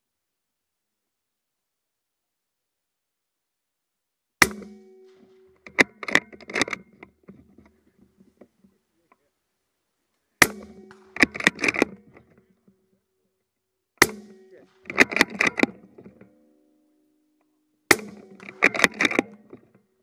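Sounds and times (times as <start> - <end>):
suppressed rifle shots: 4.4 - 7.0, 10.4 - 12.4, 14.0 - 16.3, 17.9 - 19.7
rifle bolt clicking: 10.9 - 12.0, 14.9 - 15.8, 18.1 - 19.5.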